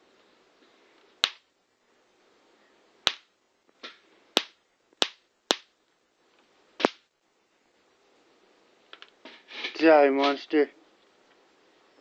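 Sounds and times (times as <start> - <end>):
electric flyswatter snapping: 6.8 - 7.0.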